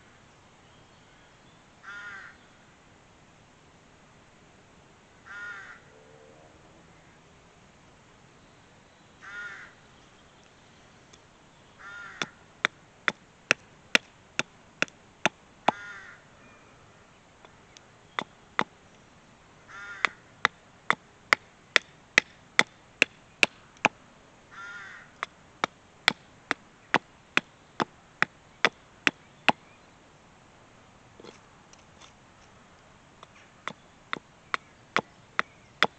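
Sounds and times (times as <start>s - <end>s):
crow cawing: 1.8s - 2.4s, 5.2s - 5.9s, 9.2s - 9.8s, 11.8s - 12.4s, 15.7s - 16.3s, 19.7s - 20.3s, 24.5s - 25.2s.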